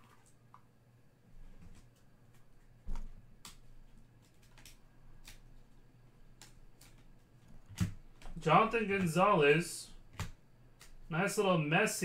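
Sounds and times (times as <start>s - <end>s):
trading cards clicking: 2.9s - 5.5s.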